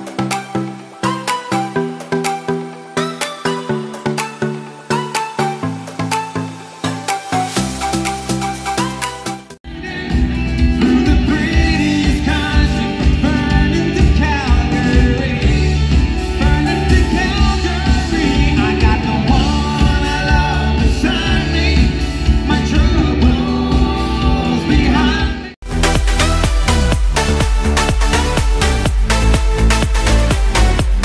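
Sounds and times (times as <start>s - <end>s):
drums: 0.0s - 31.0s
keyboards: 0.0s - 31.0s
bass guitar: 9.6s - 31.0s
male lead vocal: 9.7s - 25.6s.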